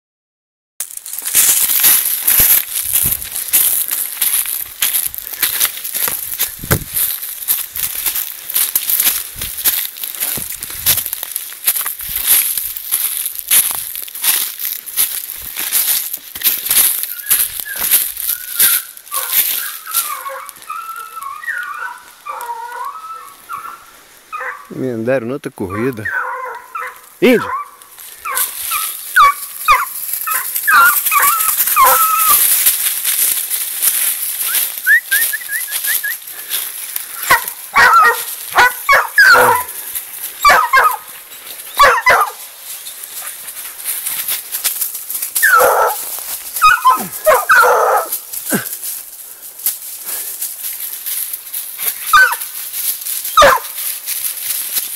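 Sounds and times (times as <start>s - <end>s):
hounds baying and barking: 16.6s - 24.8s, 25.6s - 33.3s, 34.0s - 53.9s.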